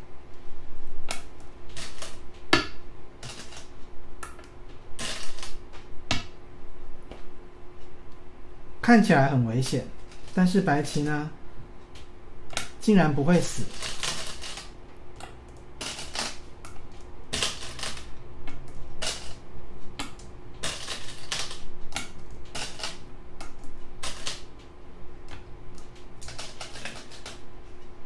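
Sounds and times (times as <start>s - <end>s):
faint hum: 0.0s - 28.0s
game stones clacking on board: 17.3s - 19.4s, 20.0s - 24.5s.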